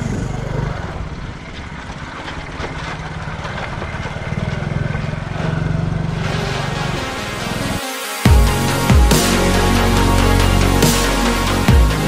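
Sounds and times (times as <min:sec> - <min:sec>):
small motorcycle engine running: 0:00.0 - 0:07.7.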